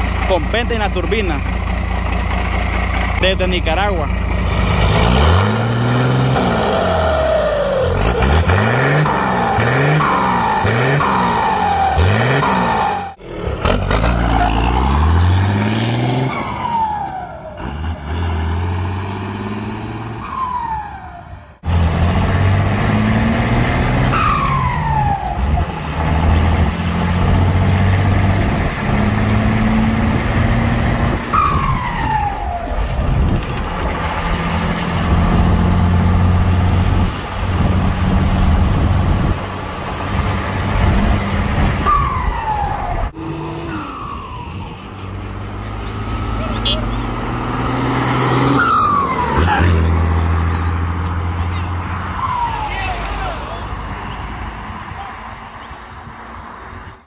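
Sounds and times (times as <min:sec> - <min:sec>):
diesel engine revving: 0:00.0 - 0:57.0
truck passing on road: 0:00.0 - 0:57.0
turbo whistle: 0:46.4 - 0:47.1.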